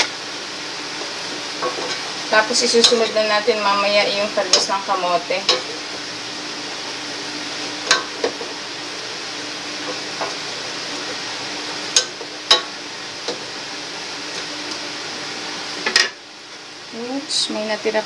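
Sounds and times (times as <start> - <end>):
steady sizzle: 0.0 - 18.0
spatula stirring vegetables: 0.8 - 15.0
spatula knocking pot: 5.4 - 5.8.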